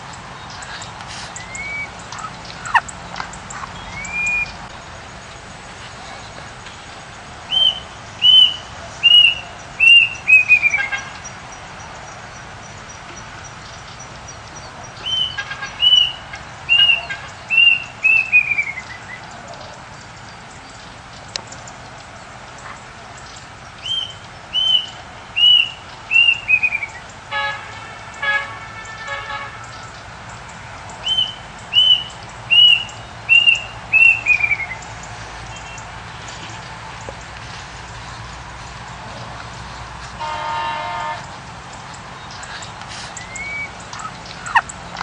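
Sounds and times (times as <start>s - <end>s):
songbird singing: 0.0s - 45.0s
short low bird calls: 0.4s - 4.8s, 41.0s - 45.0s.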